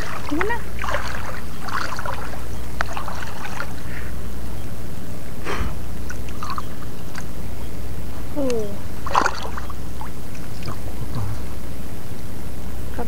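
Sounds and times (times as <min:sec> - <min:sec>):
small splashes and clicks: 0:00.0 - 0:03.7, 0:08.4 - 0:10.8
seawater sloshing and splashing: 0:00.0 - 0:04.0, 0:06.0 - 0:07.3, 0:08.9 - 0:11.3
steady low rumble: 0:00.0 - 0:13.0.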